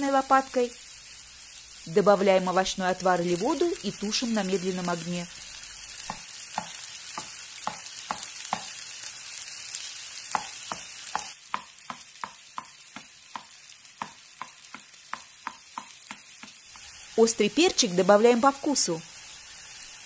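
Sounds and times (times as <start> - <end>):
vegetables sizzling in oil: 0.0 - 20.0
spatula tapping in frying pan: 6.0 - 8.8, 10.3 - 16.7.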